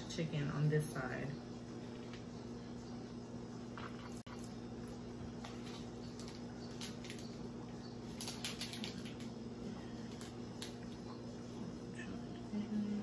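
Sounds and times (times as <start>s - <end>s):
steady low hum: 0.0s - 13.0s
seasoning sprinkling ticks and rustles: 3.8s - 11.1s.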